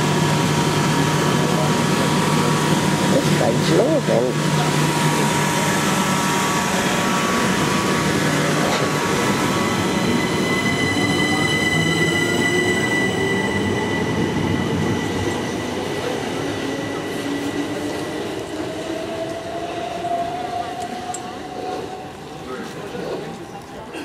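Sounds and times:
train wheel and rail noise: 0.0 - 24.0
high steady squeal: 9.2 - 15.8.

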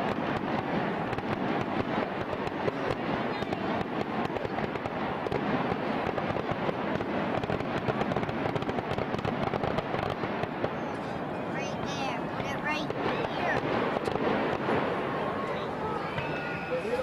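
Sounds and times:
fireworks popping and crackling: 0.0 - 17.0.

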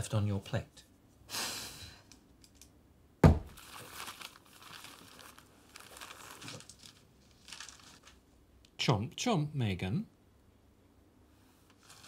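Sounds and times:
sharp thump: 3.2 - 3.5
newspaper pages rustling: 3.6 - 8.2, 11.7 - 12.0.

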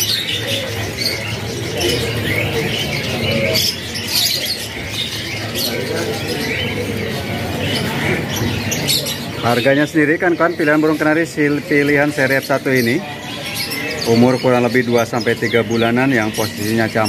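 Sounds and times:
young canaries chirping: 0.0 - 17.0.

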